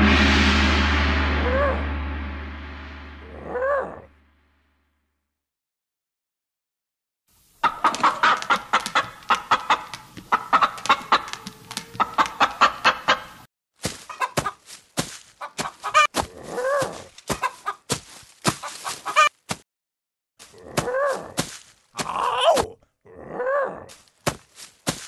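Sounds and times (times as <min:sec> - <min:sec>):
chicken clucking: 0:07.6 - 0:13.4, 0:14.0 - 0:14.6, 0:15.4 - 0:16.1, 0:16.8 - 0:17.9, 0:18.6 - 0:19.4
chicken squawk: 0:07.6 - 0:13.4, 0:14.1 - 0:14.6, 0:15.4 - 0:17.8, 0:18.6 - 0:19.4.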